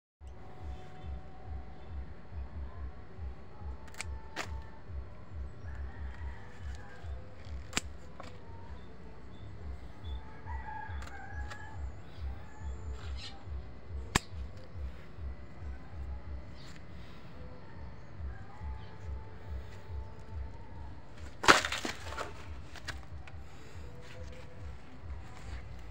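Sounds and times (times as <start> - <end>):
low rumbling noise: 0.2 - 25.9
pruning scissors snipping: 3.8 - 4.7, 7.4 - 8.4, 14.1 - 14.7
rooster crowing: 5.6 - 7.4, 10.0 - 13.3.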